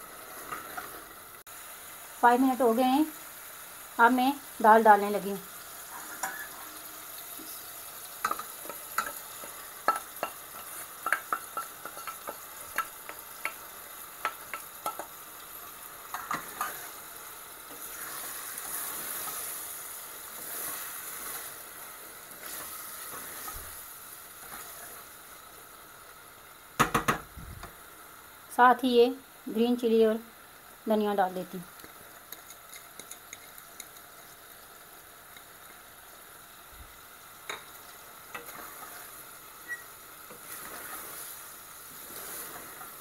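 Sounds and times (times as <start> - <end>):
food sizzling in pot: 0.0 - 43.0
spoon knocking against pot: 26.8 - 27.2.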